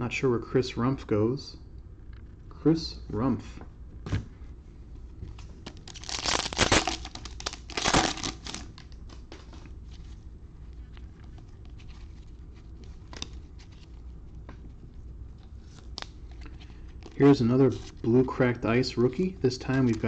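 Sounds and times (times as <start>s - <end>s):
cards rustling and clicking: 5.3s - 10.2s, 10.8s - 18.0s, 19.6s - 20.0s
foil wrapper crinkling: 5.7s - 9.4s.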